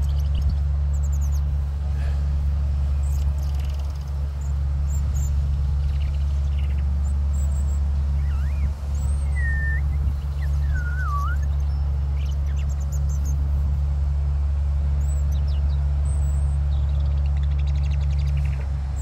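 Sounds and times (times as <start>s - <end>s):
steady low rumble: 0.0s - 19.0s
faint high bird chirps: 3.0s - 13.4s
whistled birdsong phrase: 3.0s - 13.4s.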